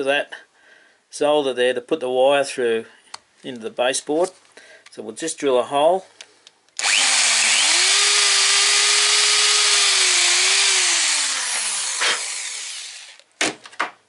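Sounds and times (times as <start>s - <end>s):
power drill boring wood: 6.8s - 13.3s.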